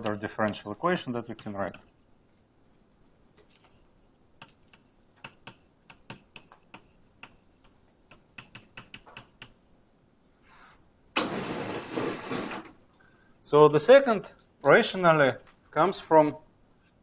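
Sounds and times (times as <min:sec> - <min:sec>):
chalk tapping on blackboard: 0:04.4 - 0:07.4.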